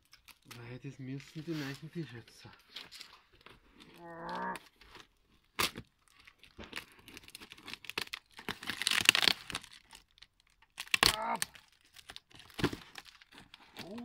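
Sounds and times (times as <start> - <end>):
tape tearing and crinkling: 2.6 - 14.0
person humming: 4.0 - 4.6, 13.8 - 14.0.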